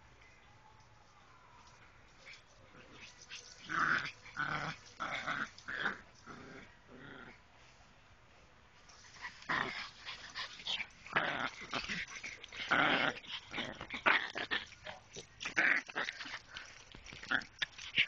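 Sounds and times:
dogs play-growling: 2.2 - 7.4, 9.1 - 18.0.

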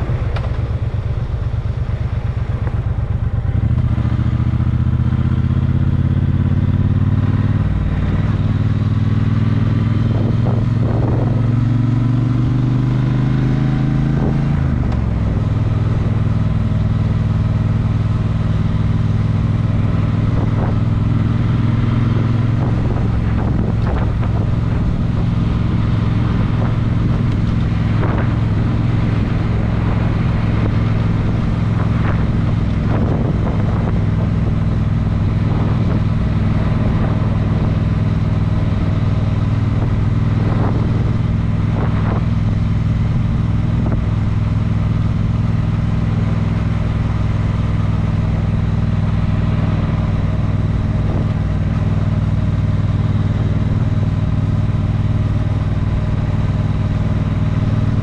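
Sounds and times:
vehicle engine droning: 0.0 - 58.0.

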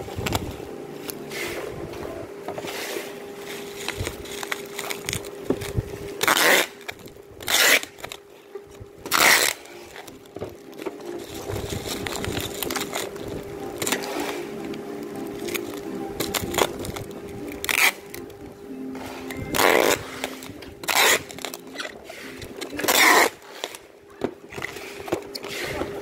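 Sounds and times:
bubble wrap crinkling: 2.6 - 23.9
loud rasping bursts: 6.2 - 8.2, 19.6 - 23.8.

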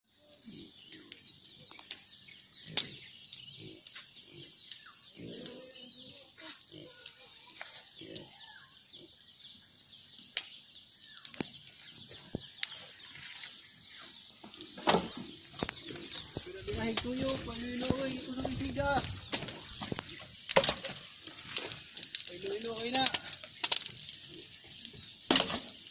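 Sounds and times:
birds chirping: 0.1 - 25.9
sharp clicks: 10.3 - 10.6, 22.1 - 23.9.

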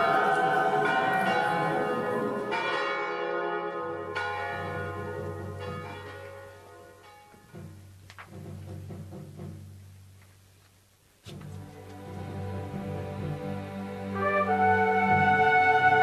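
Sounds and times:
church bells ringing: 0.0 - 7.6.

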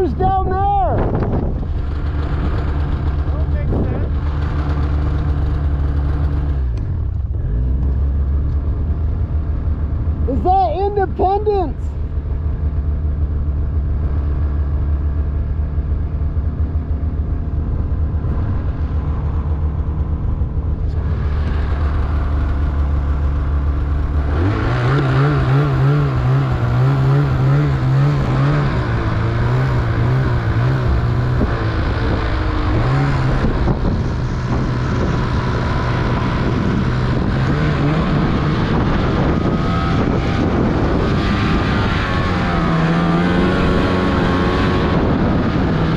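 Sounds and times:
snowmobile engine revving: 1.6 - 7.8, 21.0 - 45.9.

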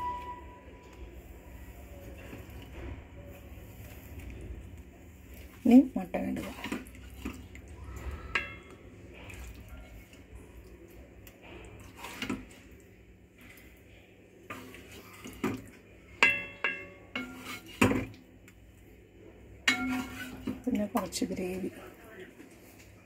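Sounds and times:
spoon clinking against metal pot: 8.3 - 8.8, 16.2 - 17.7, 19.7 - 21.2.

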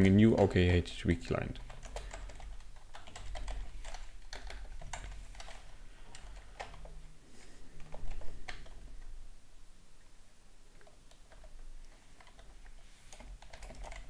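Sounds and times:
typing on computer keyboard: 1.6 - 7.0, 7.8 - 9.1, 10.8 - 14.0.

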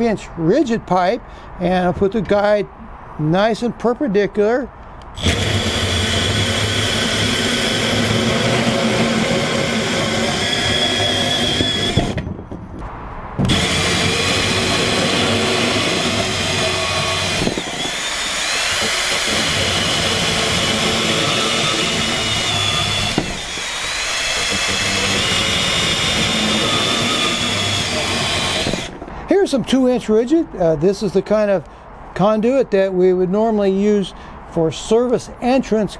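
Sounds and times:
band saw cutting metal: 5.2 - 12.2, 13.4 - 29.0.

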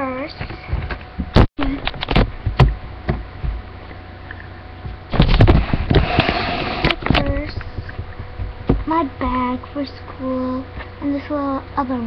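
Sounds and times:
sharp knocks and clicks: 0.4 - 3.6, 4.8 - 9.0.

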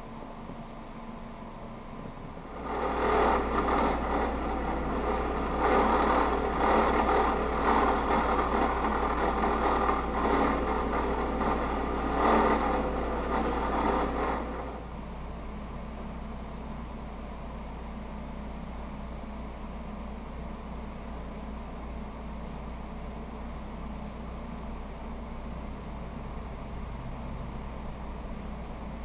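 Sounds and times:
drill press motor humming: 2.3 - 15.1.

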